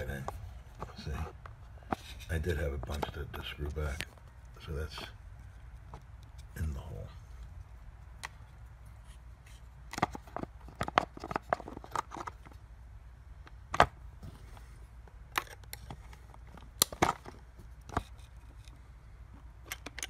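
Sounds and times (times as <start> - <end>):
steady low hum: 0.0 - 20.0
chainsaw parts clicking and rattling: 19.6 - 20.0.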